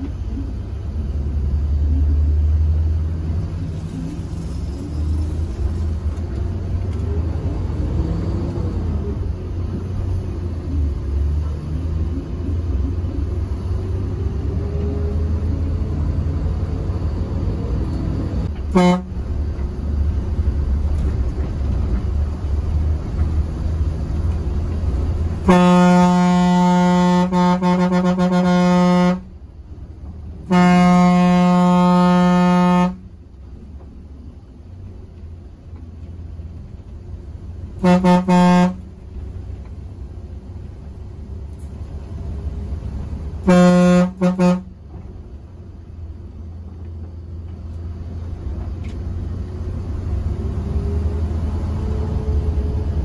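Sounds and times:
bus engine rumble: 0.0s - 53.0s
vehicle horn blasts: 18.7s - 19.1s, 25.4s - 29.3s, 30.4s - 33.1s, 37.8s - 38.9s, 43.4s - 44.8s.

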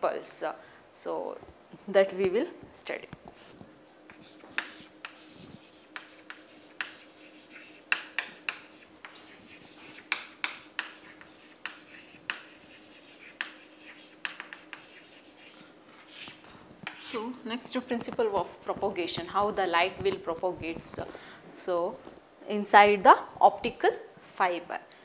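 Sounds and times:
chalk tapping and scratching: 3.3s - 17.3s.

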